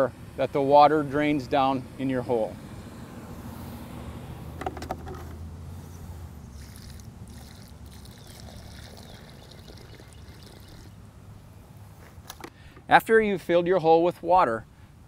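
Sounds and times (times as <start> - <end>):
bucket knocks: 4.6 - 5.4
water pouring from a bucket: 6.5 - 11.0.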